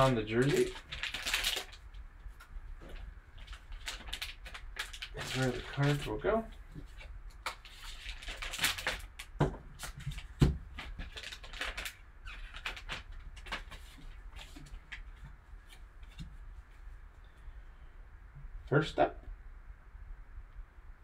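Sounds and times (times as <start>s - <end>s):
foil wrapper crinkling and tearing: 0.0s - 2.0s, 2.8s - 6.5s, 7.4s - 15.1s.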